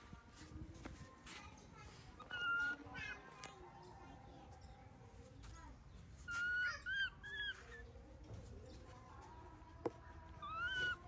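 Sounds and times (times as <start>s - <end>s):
baby monkey high-pitched calls: 2.2s - 3.2s, 6.2s - 7.9s, 10.4s - 11.0s.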